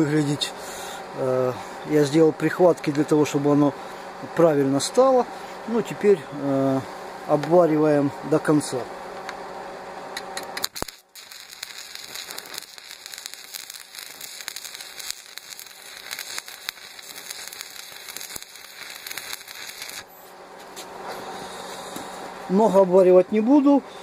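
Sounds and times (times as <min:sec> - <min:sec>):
arc welding crackling: 0:04.4 - 0:23.6.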